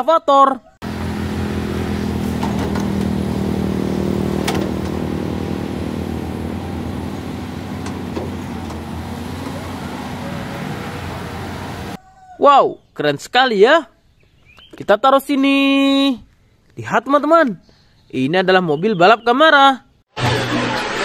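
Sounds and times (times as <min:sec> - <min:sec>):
excavator diesel engine running: 0:00.8 - 0:12.0.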